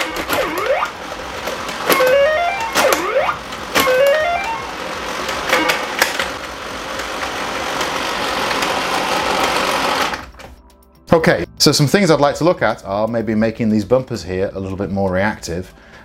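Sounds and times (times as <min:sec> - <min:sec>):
electronic beeps and swooping tones: 0:02.0 - 0:04.7.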